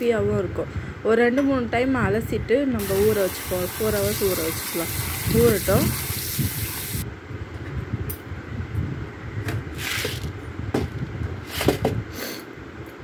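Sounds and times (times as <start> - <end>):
steady low rumble: 7.0 - 11.4.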